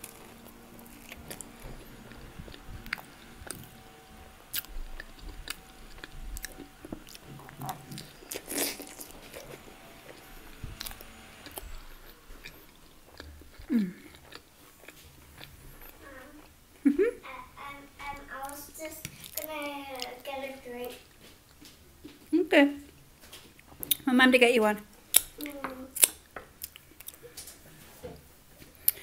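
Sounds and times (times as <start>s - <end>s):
chewing and crunching: 0.0s - 16.8s
person humming: 13.6s - 14.1s.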